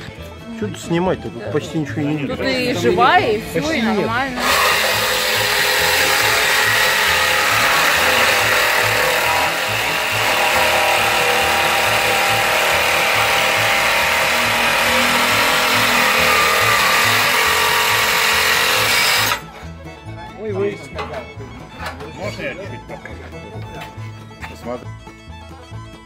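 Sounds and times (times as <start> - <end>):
jigsaw sawing through steel: 3.9 - 19.6.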